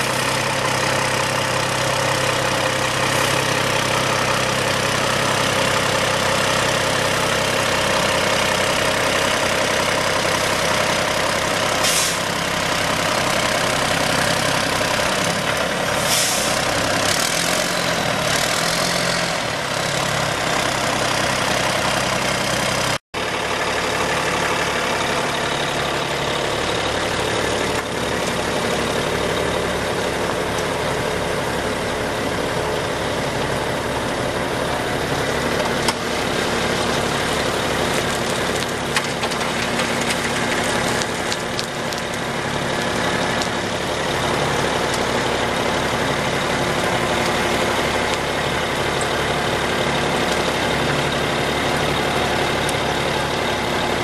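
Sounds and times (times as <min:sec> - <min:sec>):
diesel truck idling: 0:00.0 - 0:54.0
short hisses: 0:11.8 - 0:12.2, 0:16.0 - 0:16.6.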